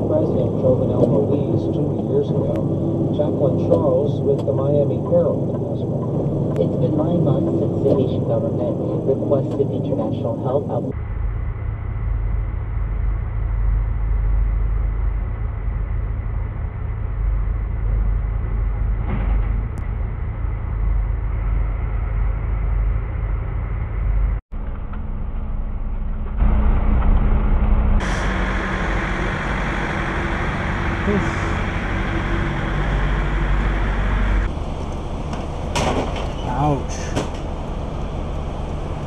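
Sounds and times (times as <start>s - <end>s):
diesel truck engine rumbling: 0.0s - 39.0s
loud hiss: 28.0s - 34.5s.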